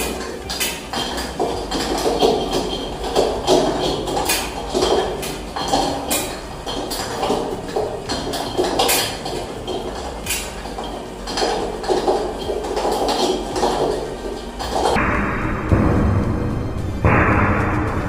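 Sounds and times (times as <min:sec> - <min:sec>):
ceiling fan rattling: 0:00.0 - 0:18.0
low steady hum: 0:00.0 - 0:18.0.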